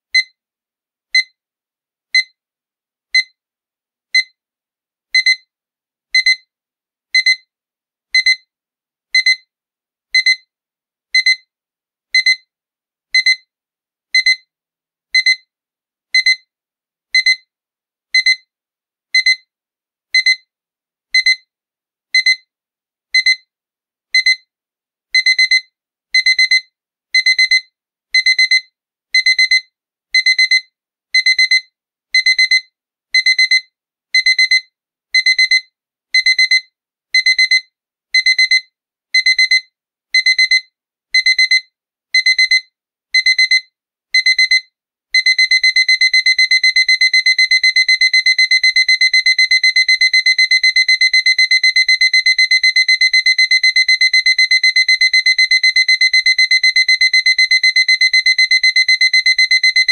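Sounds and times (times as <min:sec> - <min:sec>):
alarm clock beeping: 0:43.2 - 0:43.6, 0:44.2 - 0:44.6, 0:45.2 - 0:59.9.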